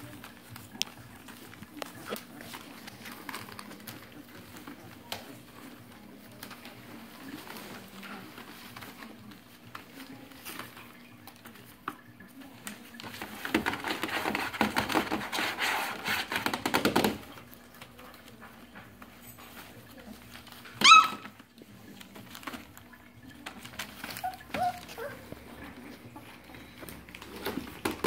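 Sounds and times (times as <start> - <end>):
paper rustling and crinkling: 0.0 - 28.0
puppies scrabbling on newspaper: 0.0 - 28.0
puppy yelping: 20.8 - 21.4, 24.0 - 25.3.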